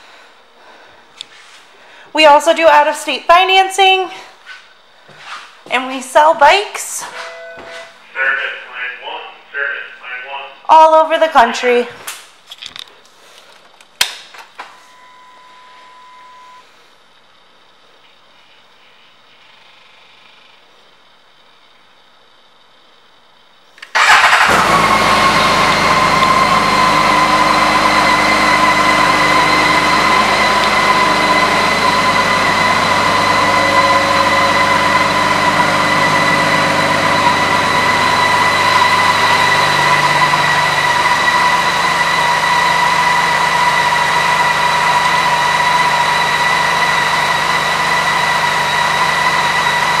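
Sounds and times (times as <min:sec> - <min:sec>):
steady high whine: 0:05.7 - 0:11.8, 0:21.2 - 0:50.0
motorcycle engine starting and idling: 0:23.8 - 0:50.0.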